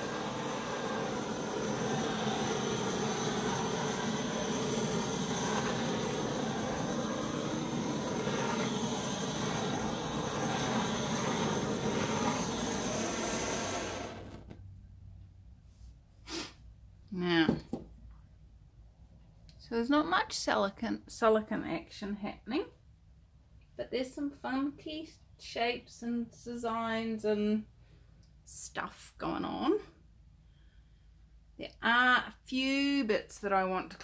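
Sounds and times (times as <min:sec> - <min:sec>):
heat gun blowing air: 0:00.0 - 0:14.6.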